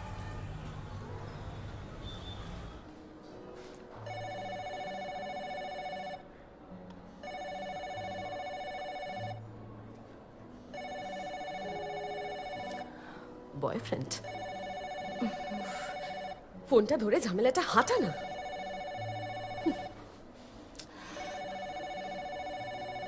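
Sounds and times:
phone ringing electronic trill: 18.1s - 19.9s, 21.2s - 23.0s.

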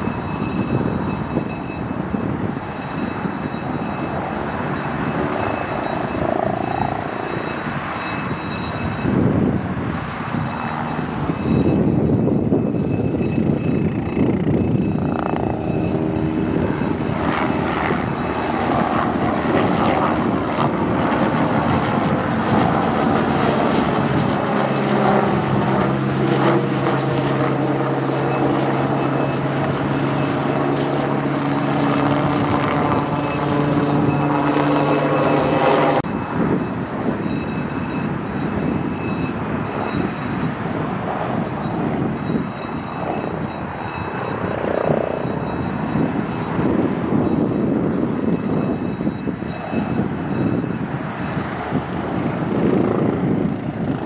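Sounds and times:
helicopter flying overhead: 0.0s - 54.0s.

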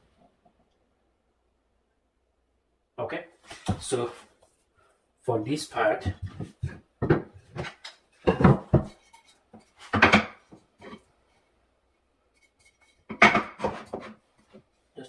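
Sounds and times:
wood pieces and tools knocking: 6.0s - 11.0s, 12.4s - 14.7s.

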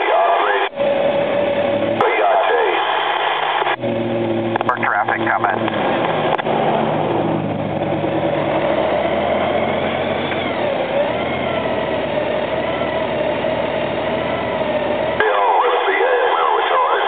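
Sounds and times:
road and air noise: 0.0s - 17.0s
motorcycle engine running: 3.8s - 15.2s.

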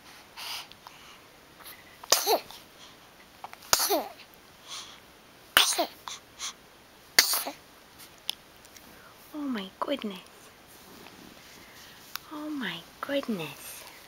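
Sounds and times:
baby sneezing: 2.1s - 2.5s, 3.7s - 4.2s, 5.6s - 6.0s, 7.2s - 7.6s.

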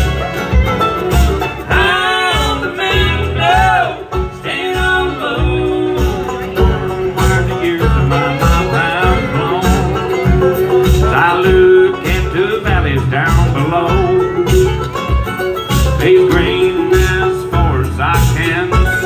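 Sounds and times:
acoustic guitar: 0.0s - 19.0s
banjo: 0.0s - 19.0s
fiddle: 0.0s - 19.0s
upright bass: 0.0s - 19.0s.

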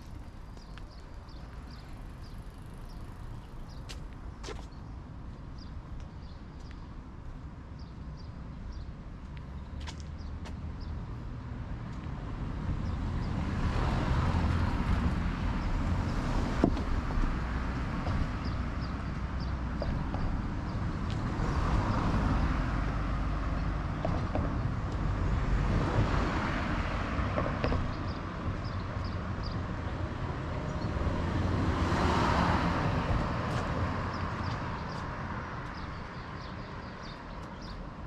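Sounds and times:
cars passing: 0.0s - 5.9s, 6.6s - 38.0s
small birds chirping: 0.0s - 7.0s, 7.6s - 11.0s, 27.7s - 29.7s, 33.5s - 38.0s.

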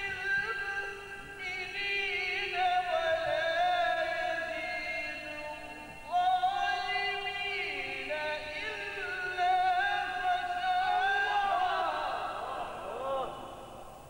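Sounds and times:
man chanting melodically: 0.0s - 14.0s.

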